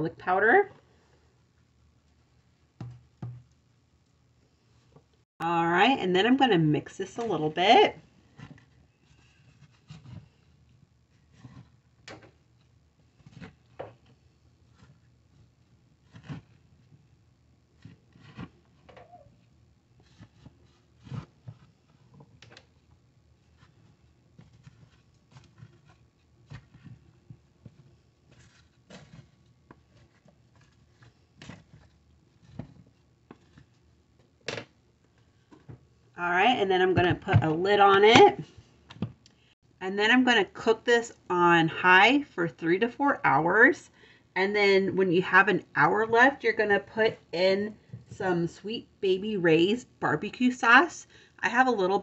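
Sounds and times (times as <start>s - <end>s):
plastic spoon stirring food in pot: 1.6s - 4.2s, 6.8s - 39.3s.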